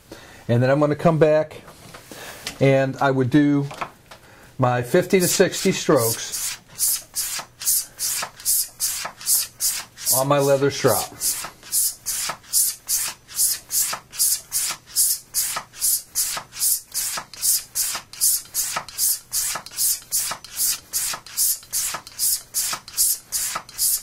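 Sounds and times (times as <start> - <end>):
razor swishing on leather strop: 5.2 - 24.0.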